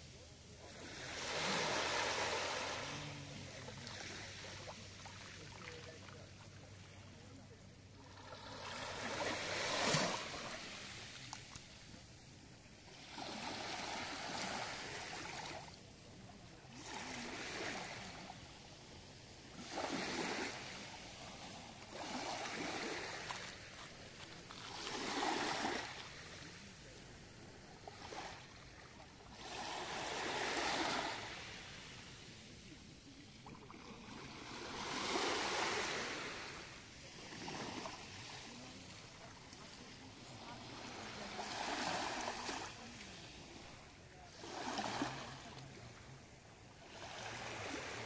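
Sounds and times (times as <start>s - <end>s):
small waves lapping on pebbles: 0.2s - 48.0s.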